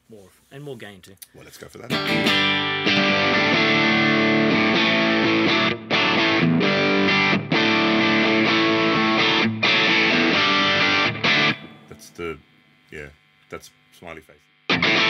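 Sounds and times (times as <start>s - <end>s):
overdriven electric guitar chords: 1.9s - 12.2s, 14.5s - 15.0s.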